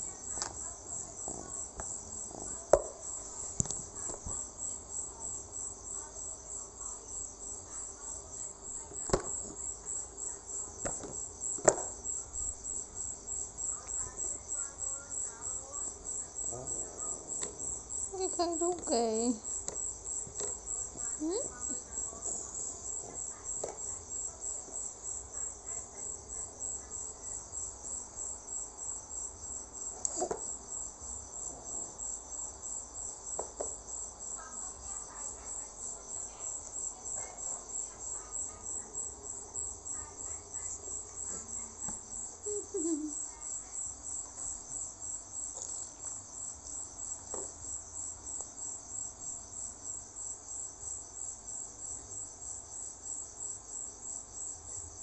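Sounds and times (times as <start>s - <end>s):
cricket chirping: 0.0s - 55.0s
taps on plastic tray: 10.8s - 11.9s.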